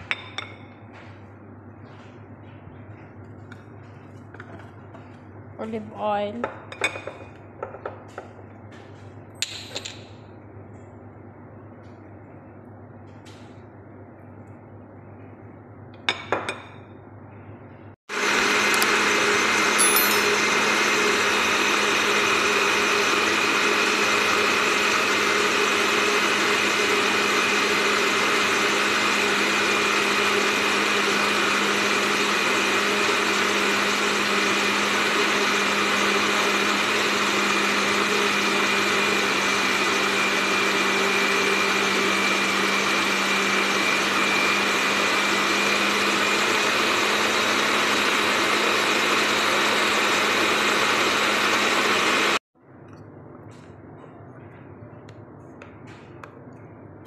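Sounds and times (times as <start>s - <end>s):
blender motor running: 18.1s - 52.4s.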